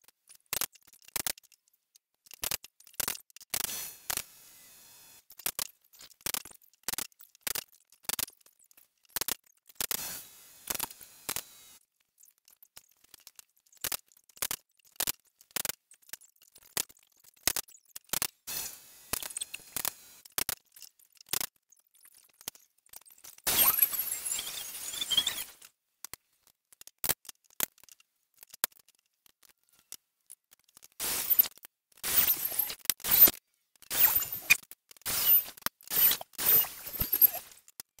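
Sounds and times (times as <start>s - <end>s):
pneumatic nailer clicks: 2.4s - 4.3s, 9.2s - 11.6s, 18.1s - 20.6s, 31.0s - 37.6s.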